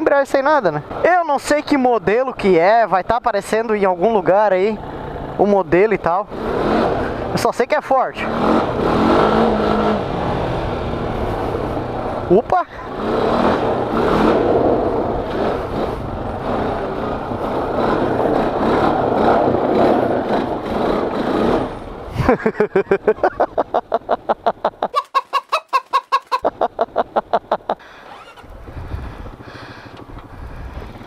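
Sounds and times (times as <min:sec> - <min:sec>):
quad bike engine running: 0:02.0 - 0:22.5, 0:27.0 - 0:31.0
wind noise: 0:28.1 - 0:31.0.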